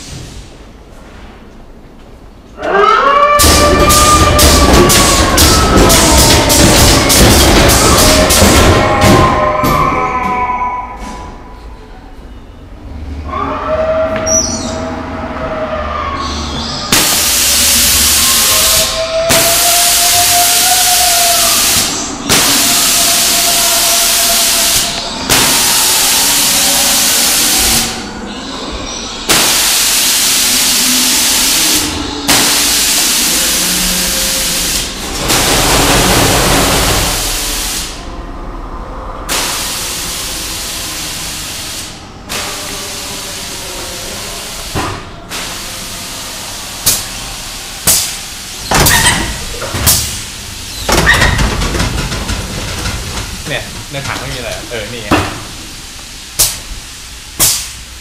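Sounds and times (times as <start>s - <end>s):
loud hissing bursts: 3.4s - 9.0s, 16.9s - 28.1s, 29.3s - 38.1s, 39.3s - 58.0s
sharp bangs: 3.4s - 9.8s, 16.9s - 26.5s.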